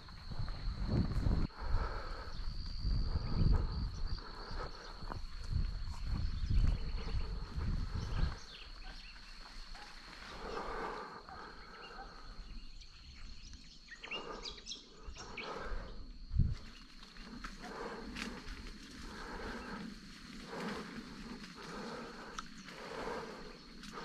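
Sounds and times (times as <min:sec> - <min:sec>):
person breathing heavily: 0:00.0 - 0:13.2, 0:13.9 - 0:24.0
high insect drone: 0:00.0 - 0:24.0
footsteps through dry grass: 0:04.0 - 0:10.9, 0:16.5 - 0:24.0.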